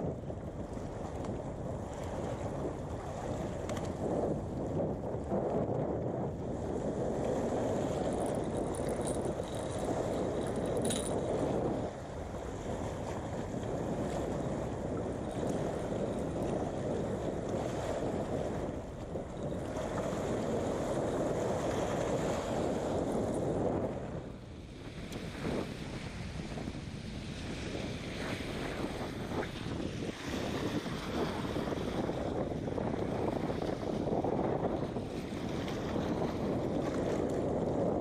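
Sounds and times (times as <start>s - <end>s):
wind buffeting microphone: 0.0s - 38.0s
waves washing against rocks: 6.6s - 23.6s, 25.2s - 38.0s.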